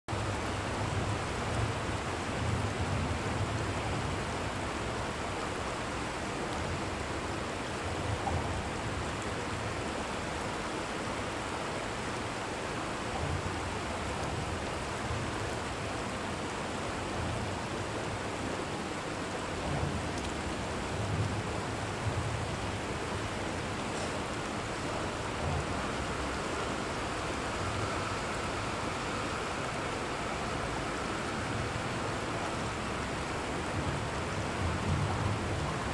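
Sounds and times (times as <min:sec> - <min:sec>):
river rushing over rocks: 0:00.1 - 0:35.9.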